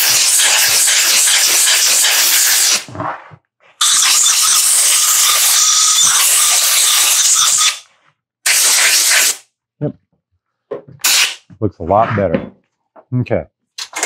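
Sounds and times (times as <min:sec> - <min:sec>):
compressed air blasts from blow gun: 0:00.0 - 0:02.9, 0:08.4 - 0:09.4, 0:11.0 - 0:11.5.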